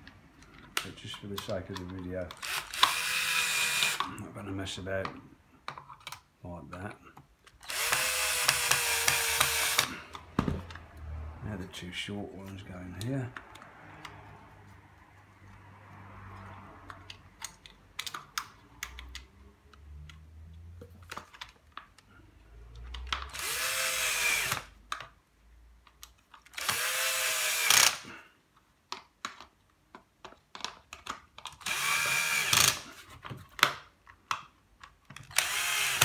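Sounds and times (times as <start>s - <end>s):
screws and parts clicking: 0.0s - 4.1s, 7.4s - 10.8s, 16.4s - 22.0s, 22.7s - 25.1s, 25.8s - 28.1s, 30.3s - 32.9s, 34.1s - 36.0s
cordless drill driving screws: 2.3s - 4.1s, 7.6s - 10.0s, 23.3s - 24.7s, 26.5s - 28.1s, 31.6s - 32.9s, 35.2s - 36.0s.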